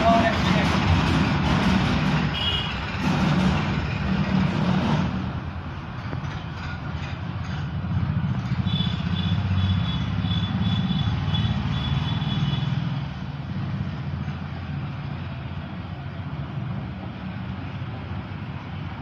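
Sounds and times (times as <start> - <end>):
engine rumble: 0.0 - 19.0.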